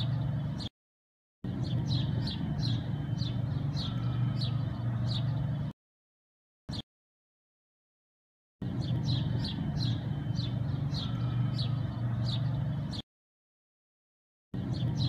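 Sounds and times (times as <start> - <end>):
bird chirping: 0.0 - 0.7, 1.5 - 5.7, 8.6 - 13.0, 14.6 - 15.0.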